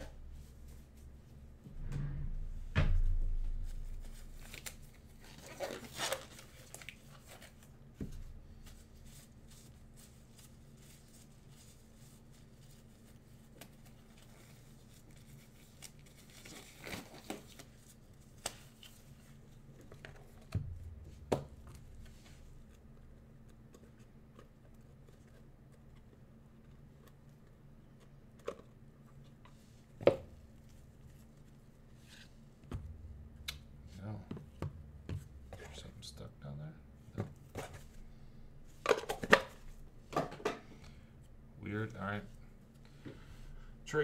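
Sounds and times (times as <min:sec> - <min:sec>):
low steady hum: 0:00.0 - 0:44.0.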